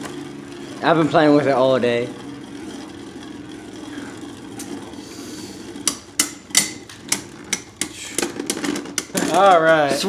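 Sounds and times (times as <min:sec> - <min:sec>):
spinning tops whirring: 0:00.0 - 0:10.0
spinning tops clicking as they collide: 0:05.8 - 0:09.4.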